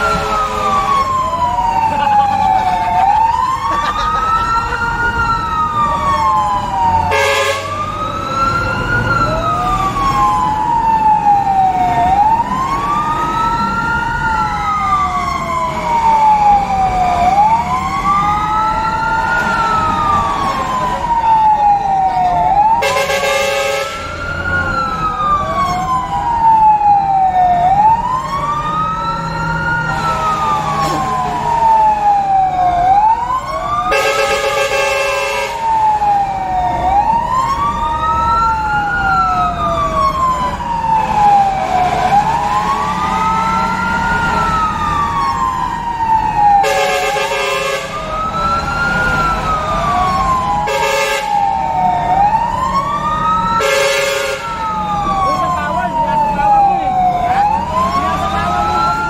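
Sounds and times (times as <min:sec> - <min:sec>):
fire engine siren wailing: 0:00.0 - 0:59.0
truck engine rumbling: 0:00.0 - 0:59.0
horn blasts: 0:07.1 - 0:07.8, 0:22.8 - 0:24.2, 0:33.9 - 0:35.6, 0:46.6 - 0:48.0, 0:50.7 - 0:51.4, 0:53.6 - 0:54.5.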